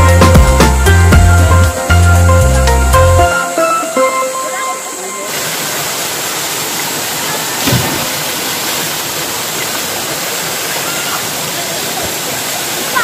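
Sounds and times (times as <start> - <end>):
river water rushing over rocks: 4.8 - 13.0
swimmer splashing into water: 5.3 - 9.9.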